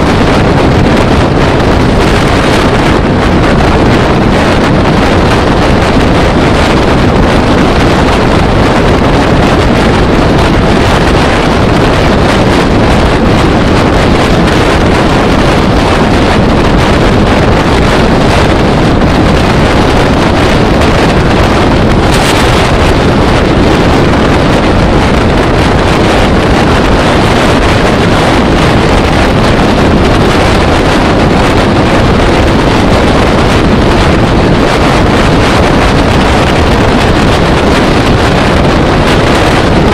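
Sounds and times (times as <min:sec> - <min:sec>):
vehicle rumble: 0:00.0 - 0:39.9
wind rushing over microphone: 0:00.0 - 0:39.9.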